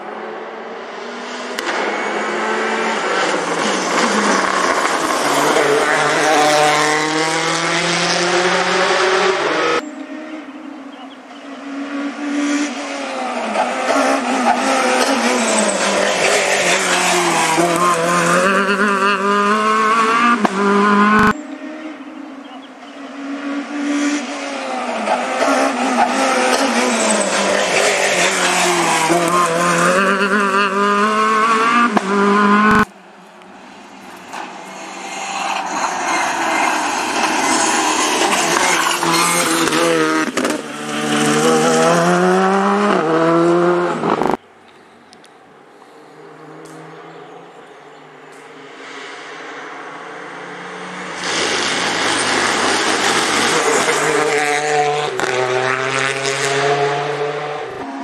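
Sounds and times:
rally car engines revving: 0.0 - 58.0.

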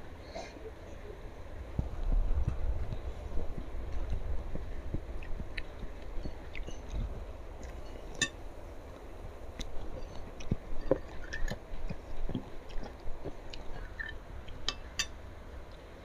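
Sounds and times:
person chewing meat: 4.9 - 8.4, 9.5 - 14.9.

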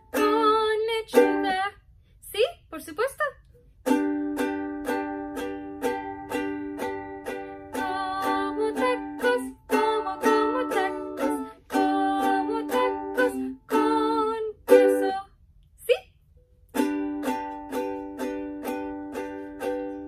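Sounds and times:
ukulele strumming: 0.0 - 1.7, 3.6 - 15.2, 16.6 - 20.0
woman singing: 0.1 - 1.8, 7.7 - 16.0.

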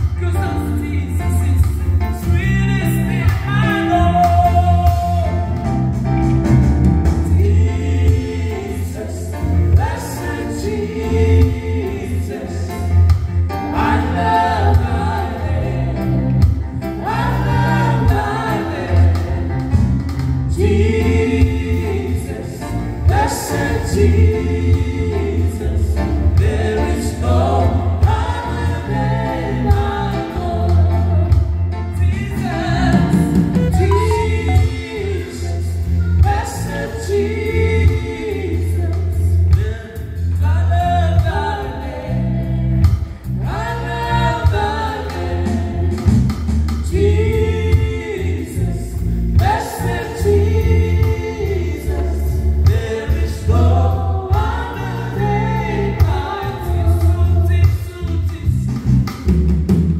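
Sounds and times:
man's voice singing: 0.0 - 5.6, 31.9 - 41.6
keyboard and guitar accompaniment: 0.0 - 59.9.

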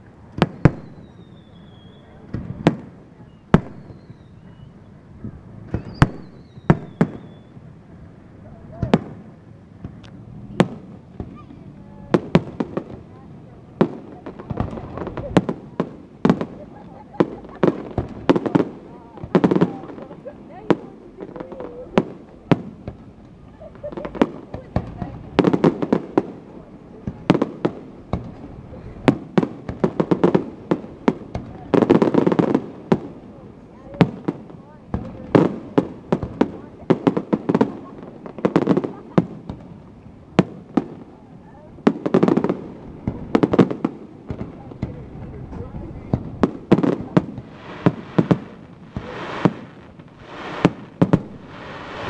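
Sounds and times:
fireworks bangs and pops: 0.0 - 52.0
rushing noise: 50.1 - 52.0.

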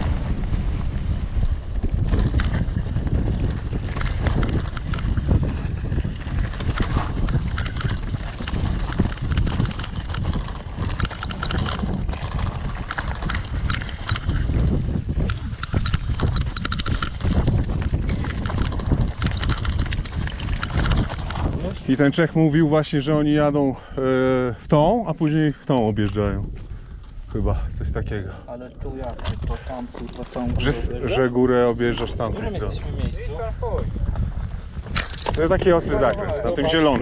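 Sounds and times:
wind buffeting microphone: 0.0 - 37.0
bike clattering over stones: 1.8 - 22.0, 34.8 - 37.0.

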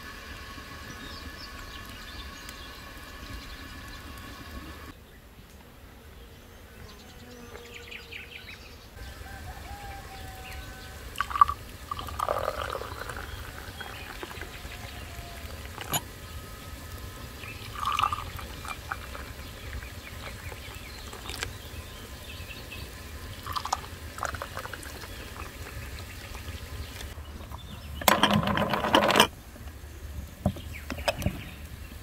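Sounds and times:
birds chirping: 0.0 - 5.5, 6.1 - 32.0
tea pouring into glass: 10.5 - 16.2, 16.9 - 21.8, 23.1 - 26.6.

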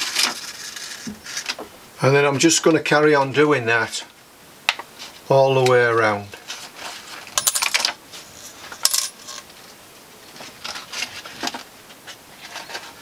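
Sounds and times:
paper rustling and crackling: 0.0 - 1.6, 10.3 - 13.0.

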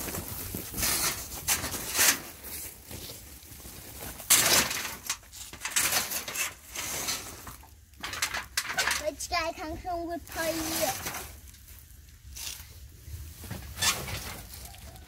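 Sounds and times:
mat scraping on corrugated metal: 0.0 - 11.6, 12.3 - 15.0.

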